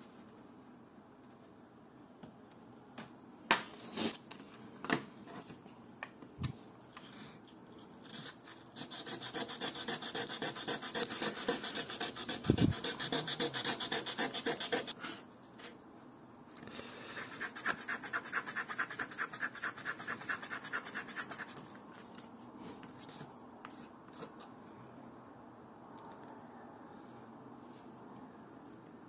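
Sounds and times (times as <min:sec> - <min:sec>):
sandpaper rasping on plastic: 0:08.0 - 0:15.0, 0:17.2 - 0:21.6.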